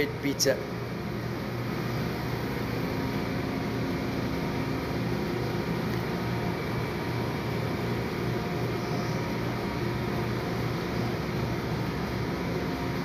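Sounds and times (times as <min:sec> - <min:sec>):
low machinery drone: 0:00.0 - 0:13.0
ventilation air rushing: 0:00.0 - 0:13.0.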